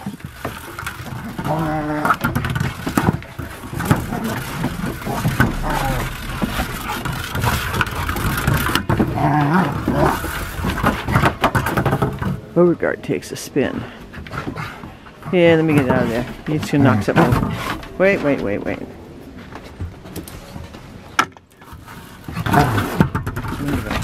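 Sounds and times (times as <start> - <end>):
dog claws scrabbling: 0.0 - 12.6, 21.6 - 24.0
rubber ball rolling over boards: 0.0 - 24.0.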